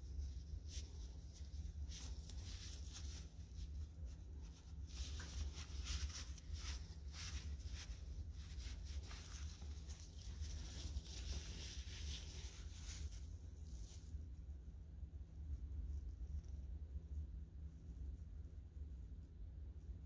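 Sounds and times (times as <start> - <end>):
paper towel rubbing: 0.0 - 14.3
steady low hum: 0.0 - 20.0.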